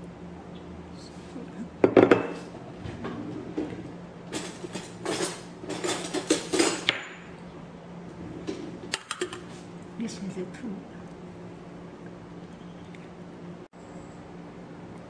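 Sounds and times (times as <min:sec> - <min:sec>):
dishes clattering: 0:01.8 - 0:07.3.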